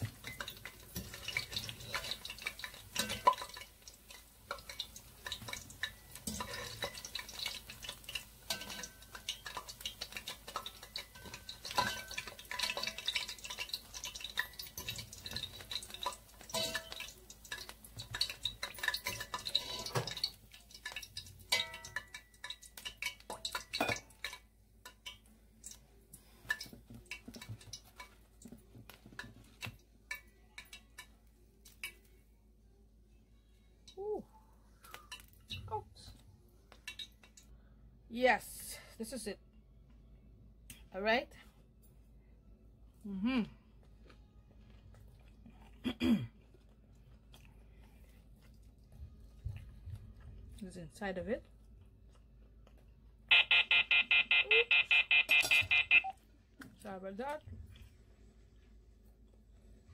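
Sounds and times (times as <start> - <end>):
metal utensils scraping a pot: 0.0 - 25.2
fritters sizzling in hot oil: 0.0 - 28.1.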